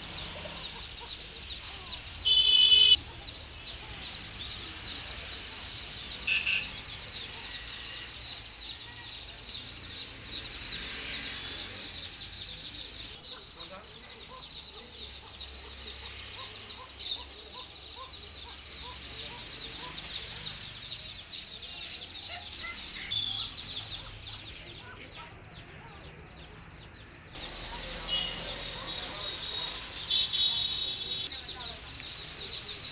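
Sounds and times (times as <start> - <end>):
caged birds chirping: 0.0 - 32.9.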